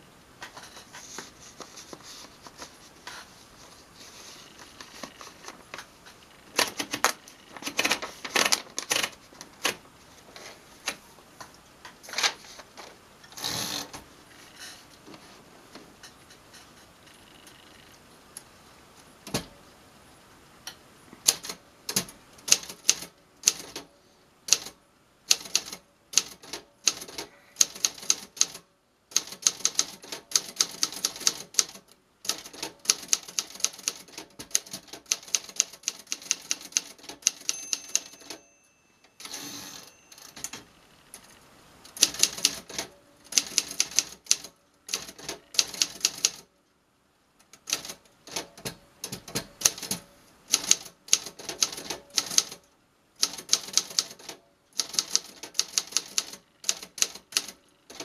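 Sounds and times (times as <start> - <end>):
typewriter keys clacking: 6.6 - 9.8, 21.2 - 23.8, 24.5 - 38.4, 42.0 - 46.4, 47.6 - 52.6, 53.2 - 58.0
typewriter carriage return ratchet: 25.3 - 38.4, 47.6 - 52.6, 53.2 - 58.0
typewriter bell ding: 37.3 - 40.5.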